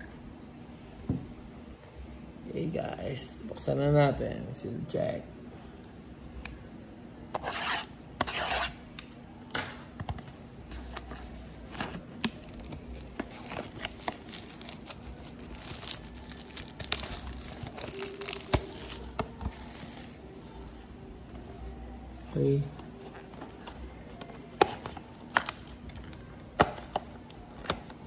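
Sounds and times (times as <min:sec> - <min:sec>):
plastic wrap crinkling and tearing: 0:10.6 - 0:20.8.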